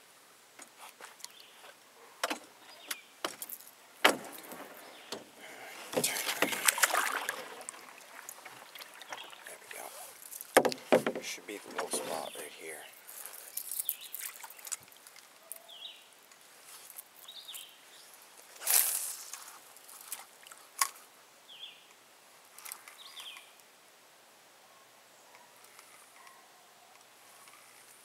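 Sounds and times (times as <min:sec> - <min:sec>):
knocks and clicks of fishing gear: 0:03.2 - 0:05.3, 0:05.9 - 0:07.0, 0:10.4 - 0:12.0
water lapping around a canoe: 0:04.1 - 0:12.3
splash: 0:05.9 - 0:09.7.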